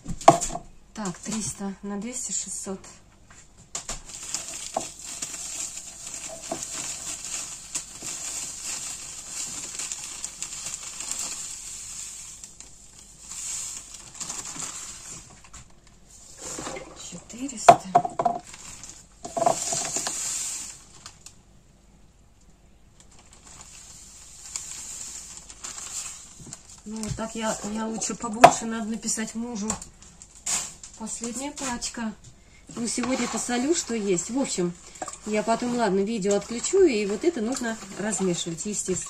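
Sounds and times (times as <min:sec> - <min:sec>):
bag rustling: 0:04.0 - 0:11.6
salt pouring into plastic jug: 0:04.2 - 0:15.3, 0:19.3 - 0:20.9, 0:23.6 - 0:26.4, 0:33.0 - 0:39.0.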